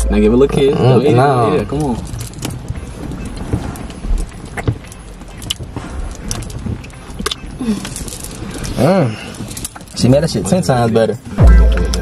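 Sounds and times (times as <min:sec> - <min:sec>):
low steady rumble: 0:00.0 - 0:03.7.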